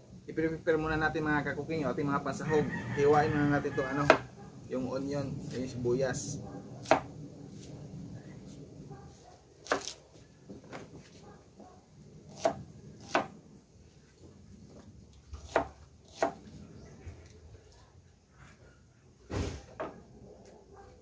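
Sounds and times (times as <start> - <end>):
dull thump: 19.3 - 20.0.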